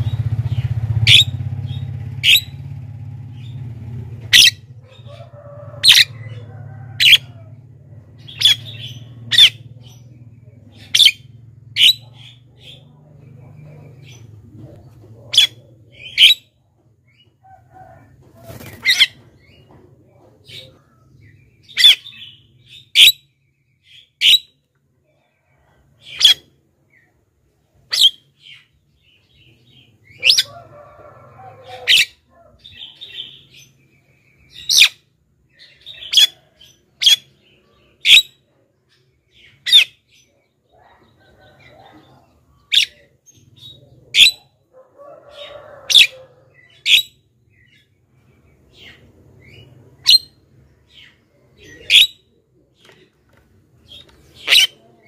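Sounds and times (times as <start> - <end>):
myna bird sharp calls: 0.0 - 7.5, 8.2 - 9.8, 29.7 - 33.6, 45.3 - 47.2, 53.9 - 55.0.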